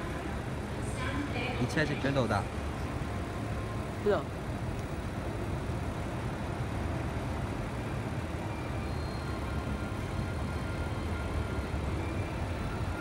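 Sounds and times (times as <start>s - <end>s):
station background rumble: 0.0s - 13.0s
faint high steady tone: 7.6s - 13.0s.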